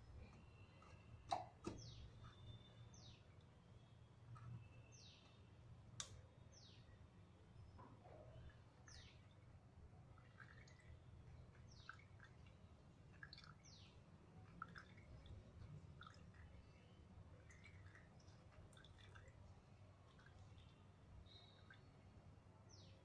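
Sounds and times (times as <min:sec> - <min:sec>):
bird chirping: 0:00.2 - 0:05.5, 0:20.5 - 0:22.0.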